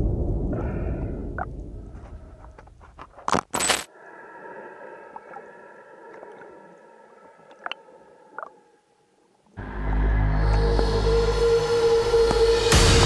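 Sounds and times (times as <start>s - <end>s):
water noise: 4.0s - 12.6s
high-pitched hum: 9.6s - 13.0s.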